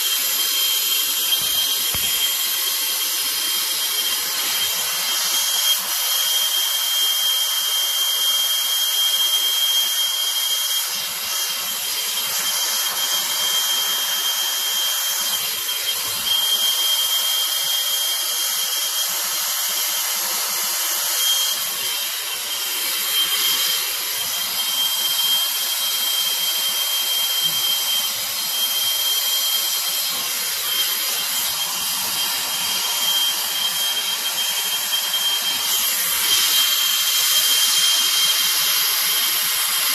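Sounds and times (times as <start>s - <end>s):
gas torch hissing: 0.0s - 39.9s
thin high whistle: 0.0s - 39.9s.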